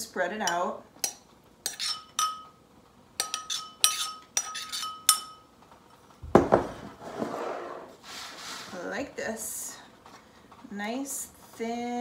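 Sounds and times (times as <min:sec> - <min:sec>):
metal spoon clinking on ceramic bowl: 0:00.5 - 0:02.6, 0:03.2 - 0:05.5
rough scraping rub: 0:06.9 - 0:08.9.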